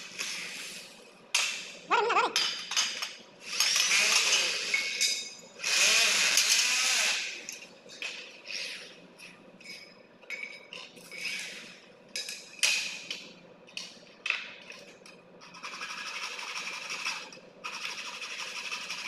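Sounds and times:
metal tubes clinking and scraping: 0:03.5 - 0:05.4, 0:07.5 - 0:12.8.

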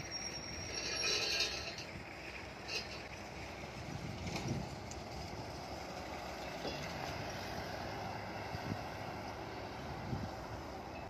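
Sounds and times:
distant traffic hum: 0:00.0 - 0:11.0
wind on microphone: 0:03.6 - 0:04.9, 0:08.4 - 0:09.0, 0:09.8 - 0:10.6.

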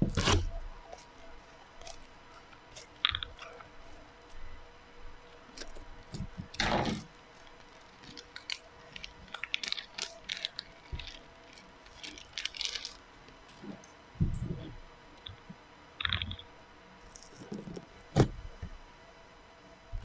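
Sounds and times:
plastic packet crinkling: 0:00.1 - 0:04.4, 0:05.3 - 0:13.0.

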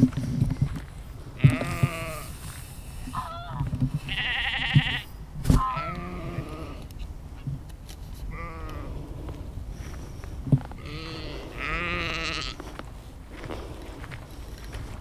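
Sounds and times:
steady low rumble: 0:00.0 - 0:15.0
sheep bleating: 0:01.4 - 0:02.4, 0:03.1 - 0:06.9, 0:08.3 - 0:08.9, 0:10.8 - 0:12.6.

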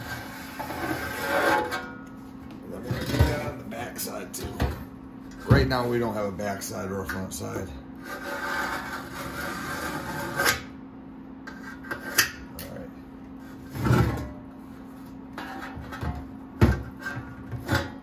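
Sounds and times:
tool scratching metal panel: 0:00.0 - 0:01.8, 0:08.0 - 0:10.7
steady low hum: 0:00.0 - 0:18.0.

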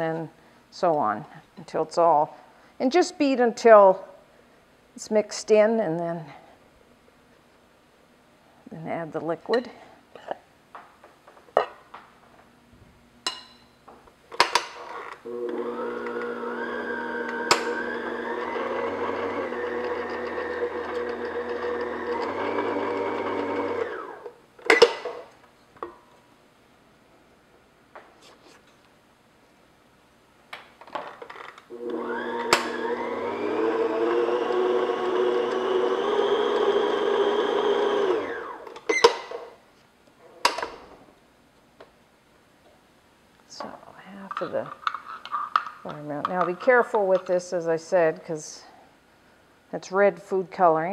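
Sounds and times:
stand mixer motor whining: 0:15.3 - 0:24.2, 0:31.7 - 0:38.7.

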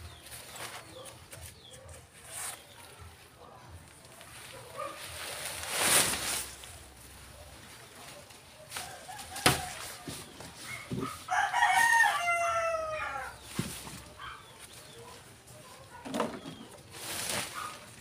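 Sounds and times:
tent fabric rustling: 0:03.9 - 0:11.3, 0:16.8 - 0:18.0
rooster crowing: 0:11.3 - 0:13.4.

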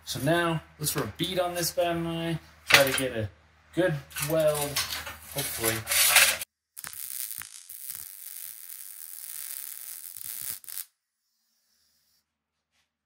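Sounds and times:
welding arc crackling and hissing: 0:04.2 - 0:10.9.

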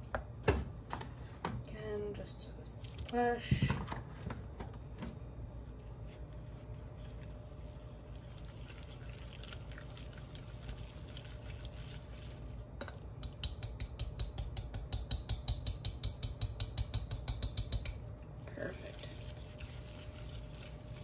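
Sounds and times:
wire whisk striking a pan: 0:13.2 - 0:18.0.

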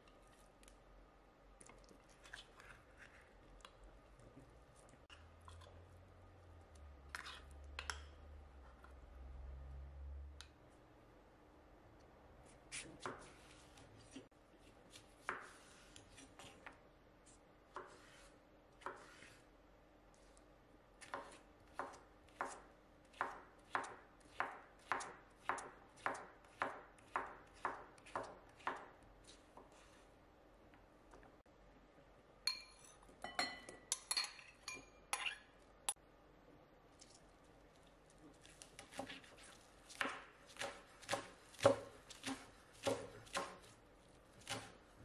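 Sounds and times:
knife chopping on cutting board: 0:39.9 - 0:43.8, 0:44.4 - 0:44.8.

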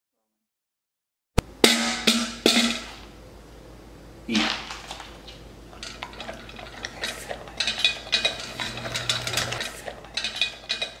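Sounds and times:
dog bowl clinking and clattering: 0:05.7 - 0:11.0.

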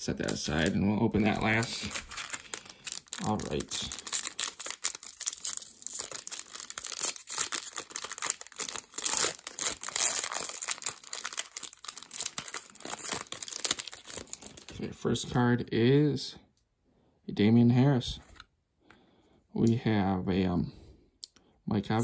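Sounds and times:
foil wrapper crinkling: 0:00.0 - 0:14.8.

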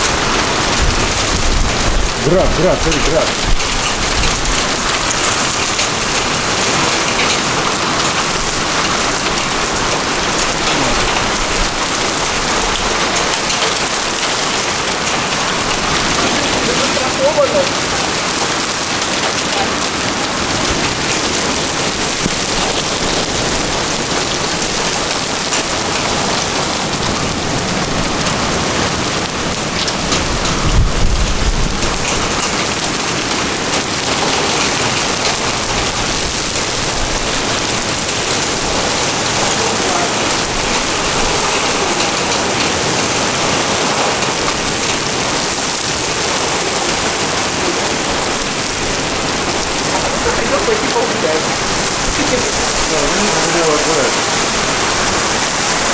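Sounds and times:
low thunder rumble: 0:00.0 - 0:17.0, 0:30.2 - 0:33.0
heavy rain on pavement: 0:00.0 - 0:55.9.

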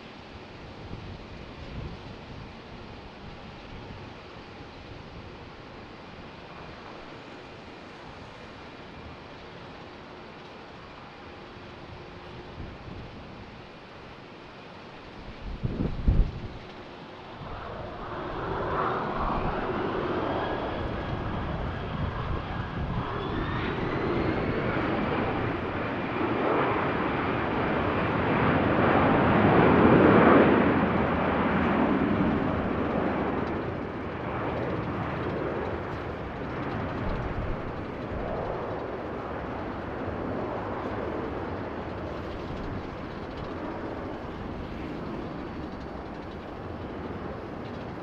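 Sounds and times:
jet engines spooling up: 0:14.8 - 0:48.0.

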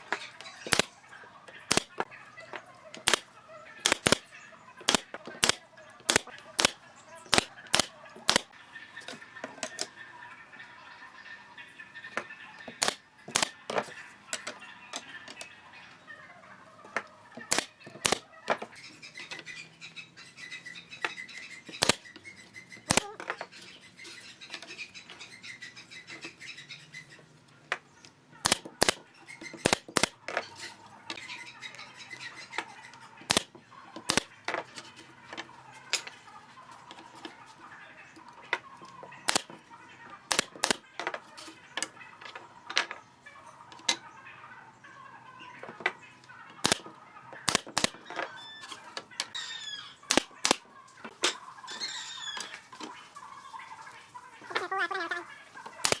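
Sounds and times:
pneumatic nailer firing: 0:03.0 - 0:03.2, 0:03.8 - 0:04.2, 0:12.8 - 0:13.5, 0:17.5 - 0:18.2, 0:40.3 - 0:40.8.

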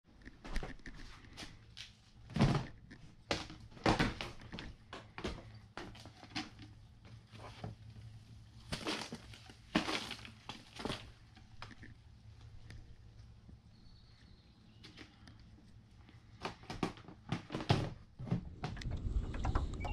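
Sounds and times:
rustling scrapes: 0:05.8 - 0:11.3.

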